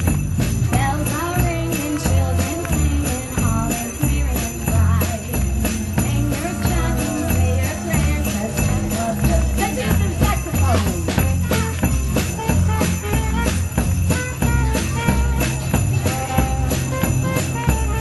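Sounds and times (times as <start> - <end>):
bass and drum beat: 0.0 - 18.0
sleigh bells jingling: 0.0 - 18.0
saxophone melody: 6.1 - 18.0.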